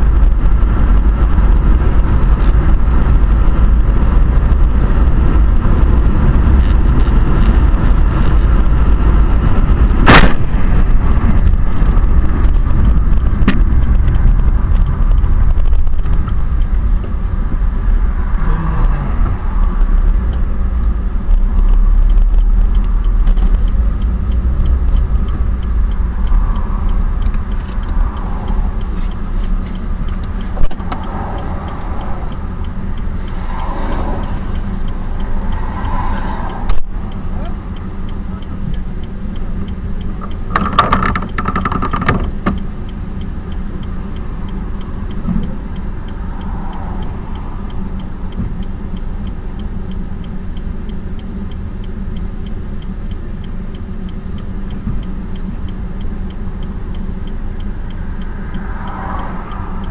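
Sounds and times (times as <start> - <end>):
steady hum: 0.0 - 40.6
engine and road rumble: 0.0 - 59.9.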